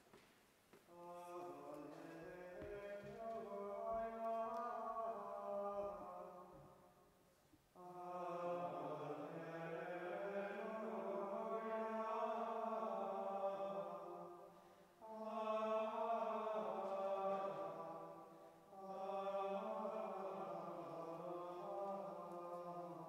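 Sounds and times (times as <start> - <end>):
men singing plainchant: 15.0 - 23.0.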